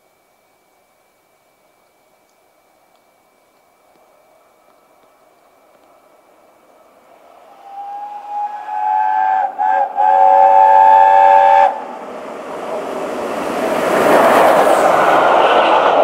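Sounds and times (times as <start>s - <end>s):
train passing at speed: 4.1s - 16.0s
steam locomotive whistle: 7.4s - 12.0s.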